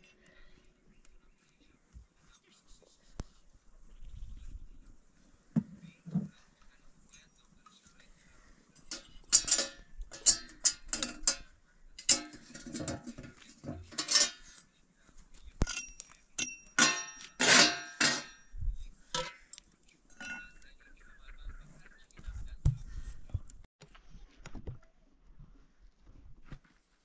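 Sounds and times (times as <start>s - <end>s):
metal cookware and dishes clattering: 8.8s - 14.6s, 15.6s - 20.6s.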